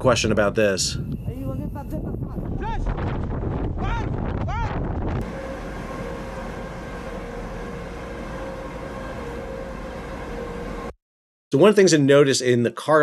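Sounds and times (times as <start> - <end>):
steady whine: 0.1 - 2.7, 5.0 - 11.0
machinery drone: 5.2 - 11.0.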